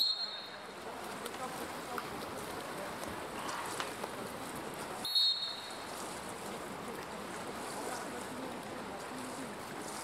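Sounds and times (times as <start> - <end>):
referee's whistle: 0.0 - 0.5, 5.0 - 5.8.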